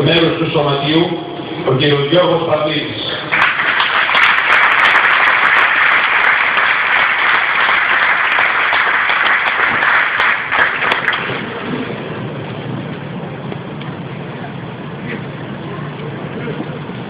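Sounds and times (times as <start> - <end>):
stadium crowd applauding: 3.1 - 11.8.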